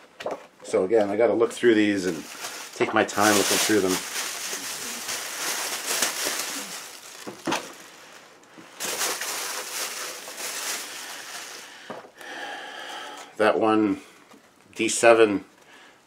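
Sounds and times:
packaging rustling and crinkling: 1.6 - 12.2.

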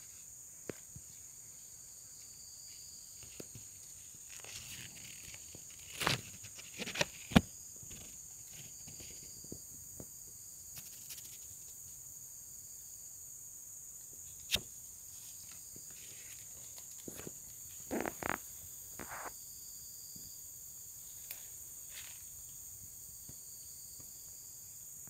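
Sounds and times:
insect calling: 0.0 - 25.0.

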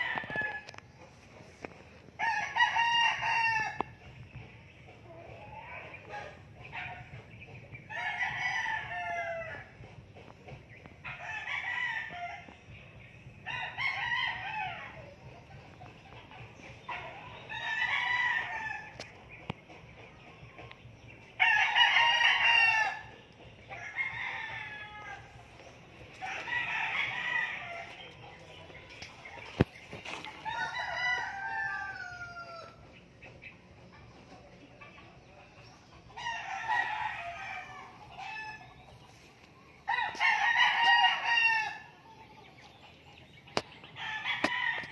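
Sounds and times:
roosters crowing: 0.0 - 1.0, 2.1 - 4.0, 7.8 - 9.9, 11.0 - 12.7, 13.4 - 15.0, 16.8 - 19.1, 21.3 - 33.1, 36.1 - 39.1, 39.8 - 42.3, 43.9 - 44.9.

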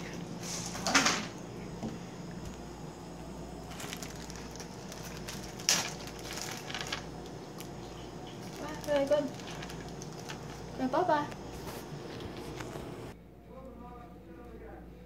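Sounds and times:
plastic packet crinkling: 3.6 - 12.9.

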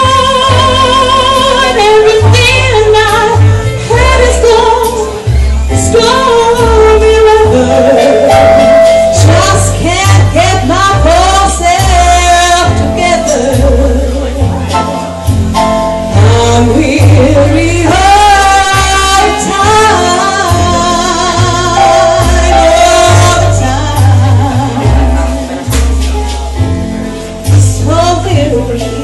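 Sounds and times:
woman singing with vibrato: 0.0 - 14.6, 16.1 - 25.3, 27.6 - 29.0
band with heavy bass line: 0.0 - 29.0.

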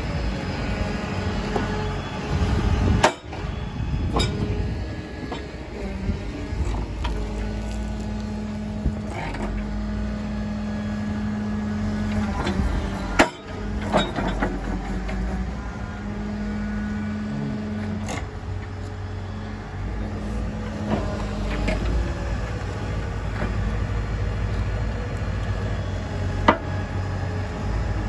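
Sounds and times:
excavator engine humming: 0.0 - 28.0.

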